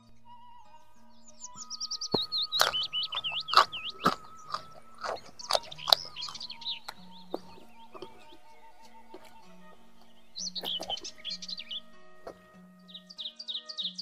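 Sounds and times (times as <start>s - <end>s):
chewing crunchy raw vegetables: 1.4s - 12.5s.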